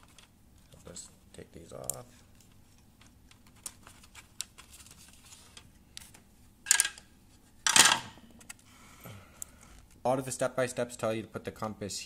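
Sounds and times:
clicks and rustles of wires: 0.0s - 1.1s, 1.7s - 8.7s.

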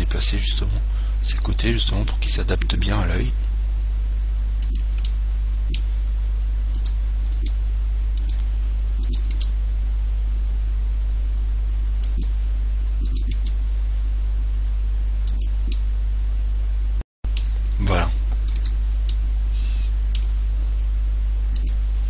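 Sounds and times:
low hum and hiss: 0.0s - 22.0s
mouse and keyboard clicks: 13.0s - 13.6s.

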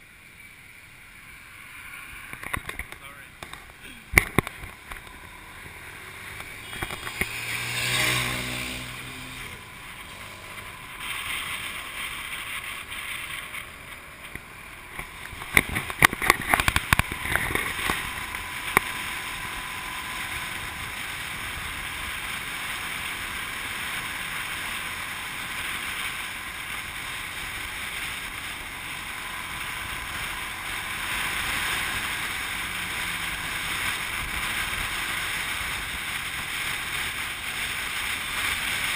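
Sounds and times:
motorcycle engine: 0.0s - 38.9s
wind and road noise: 0.0s - 38.9s
crackles on the microphone: 1.9s - 7.6s, 9.3s - 19.6s.

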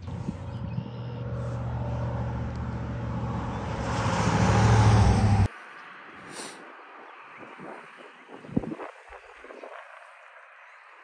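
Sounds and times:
engine humming: 0.0s - 5.5s.

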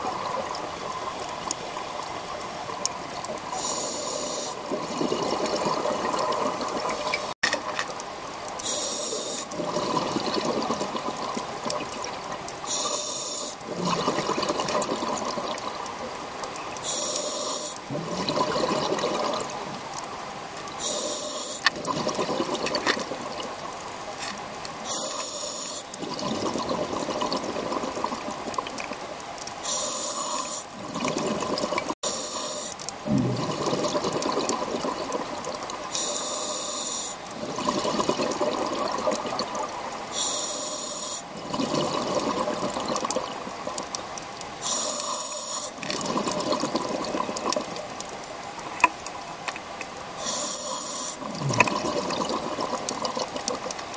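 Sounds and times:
underwater bubbling: 0.0s - 53.9s
regulator breathing hiss: 3.5s - 4.6s, 8.6s - 9.5s, 12.7s - 13.6s, 16.8s - 17.8s, 20.8s - 21.7s, 24.8s - 25.9s, 29.6s - 30.8s, 32.0s - 32.8s, 35.9s - 37.2s, 40.1s - 41.3s, 44.6s - 45.8s, 50.2s - 51.3s.

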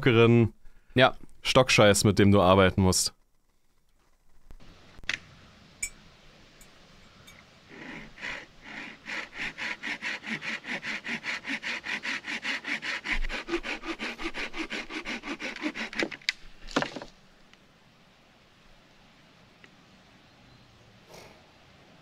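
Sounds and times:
hand saw cutting branch: 7.7s - 17.0s.

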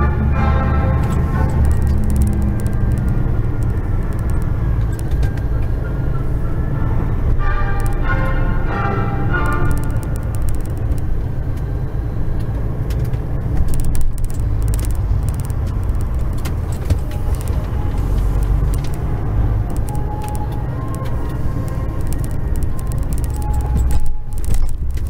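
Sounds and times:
truck engine drone: 0.0s - 25.0s
light clicks and rattles: 12.4s - 25.0s.

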